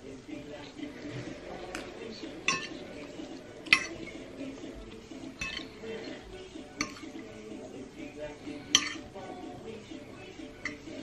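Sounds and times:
cutlery clinking on ceramic plate: 2.4s - 4.2s, 5.4s - 5.9s, 6.8s - 7.2s, 8.6s - 9.2s, 10.5s - 11.0s.

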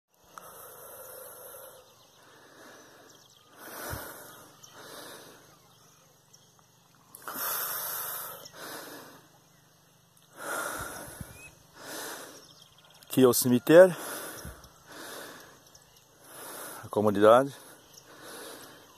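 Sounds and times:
person breathing noisily: 0.2s - 5.8s, 7.2s - 9.6s, 10.3s - 13.0s, 13.9s - 17.0s, 17.6s - 18.9s.

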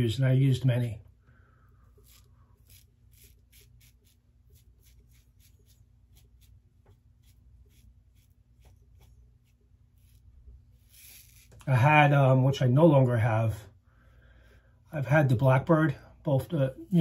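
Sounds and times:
razor scraping stubble: 1.8s - 12.2s.

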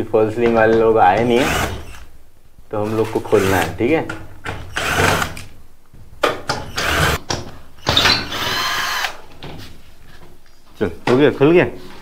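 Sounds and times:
cordless drill-driver bursts: 4.7s - 5.3s, 6.7s - 7.2s, 8.0s - 9.1s.

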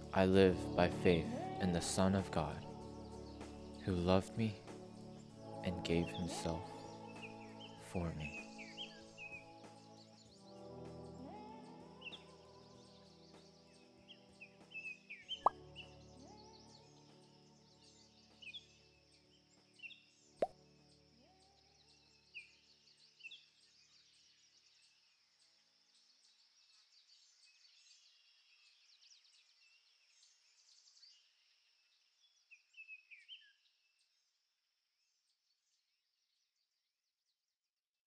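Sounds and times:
music track: 0.0s - 2.8s, 5.5s - 6.8s
high-pitched outdoor hiss: 0.0s - 15.2s
faint birds chirping: 0.0s - 34.2s.

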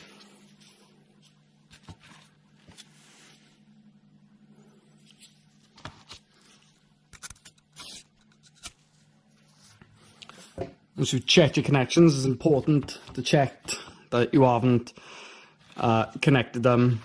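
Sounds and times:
steady low hum: 0.0s - 17.0s
clicks and scraping handling: 7.1s - 8.8s.

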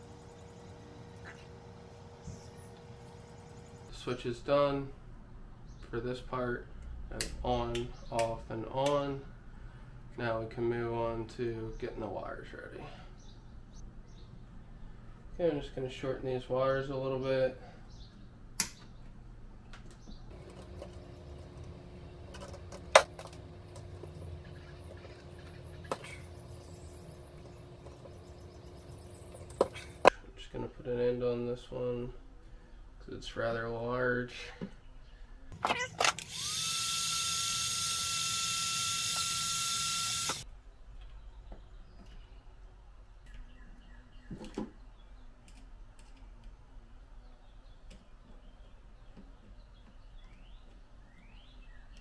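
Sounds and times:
heat gun fan whining and hissing: 0.0s - 4.2s, 20.3s - 30.1s, 36.0s - 40.4s.

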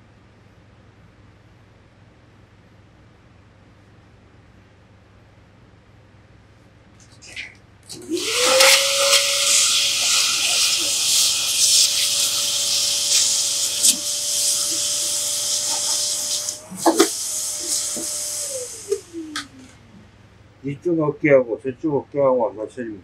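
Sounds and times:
electric blower whining: 7.9s - 19.8s.

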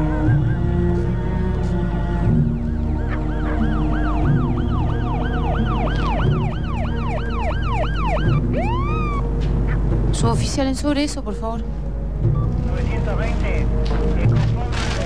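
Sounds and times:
police siren: 0.0s - 1.4s, 2.3s - 9.3s.

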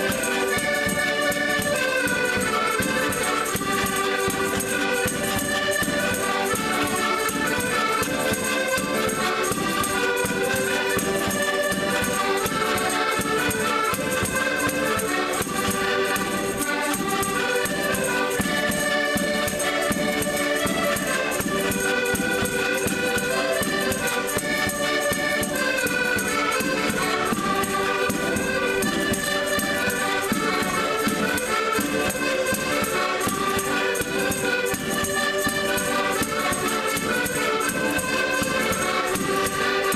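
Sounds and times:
button accordions playing: 0.0s - 39.9s.

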